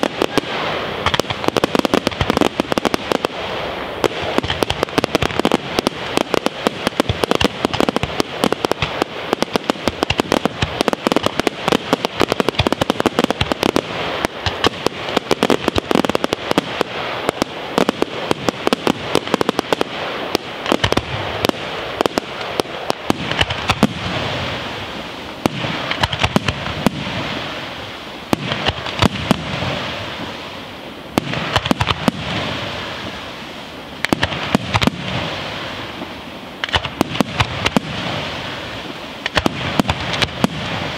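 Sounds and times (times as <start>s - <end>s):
fireworks crackling hiss: 0.0s - 40.9s
firework shell bursts: 25.4s - 27.7s.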